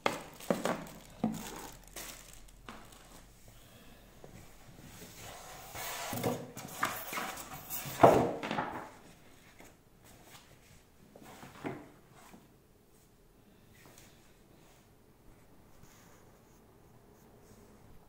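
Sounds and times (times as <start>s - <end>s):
rustling: 0.0s - 3.5s.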